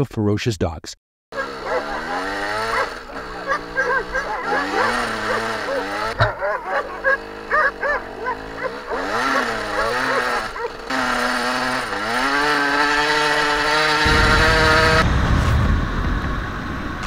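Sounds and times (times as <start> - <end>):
dogs barking: 1.3 - 11.2
dirt bike engine revving: 1.3 - 17.0.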